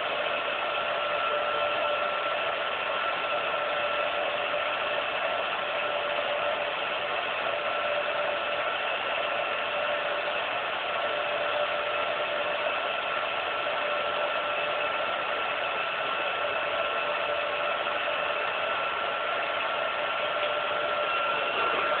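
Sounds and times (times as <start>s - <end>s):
film projector whirring: 0.0s - 22.0s
held hum tones: 20.8s - 22.0s.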